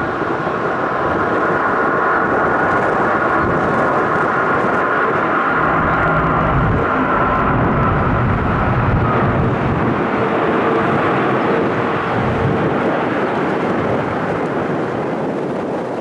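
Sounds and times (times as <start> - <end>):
jet airliner engine rush: 0.0 - 16.0.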